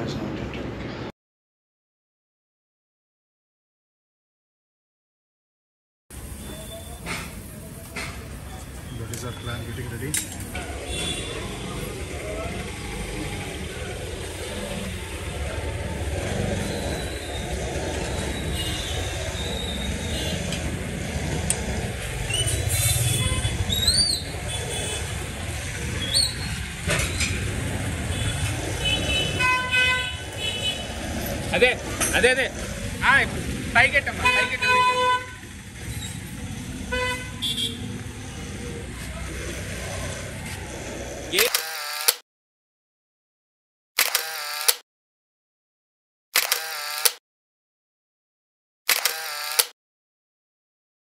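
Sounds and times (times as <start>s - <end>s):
motor vehicles rumbling: 0.0s - 1.1s, 6.1s - 41.6s
vehicle horn toot: 22.8s - 23.6s, 28.1s - 30.9s, 34.2s - 35.4s, 36.9s - 37.8s
sharp click: 44.0s - 44.8s, 46.4s - 47.2s.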